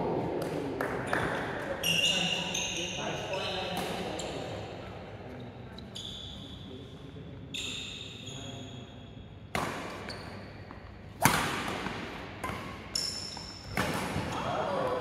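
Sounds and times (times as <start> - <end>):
shoes squeaking on floor: 1.8 - 3.6, 5.8 - 6.7
racket striking shuttlecock: 11.2 - 14.4.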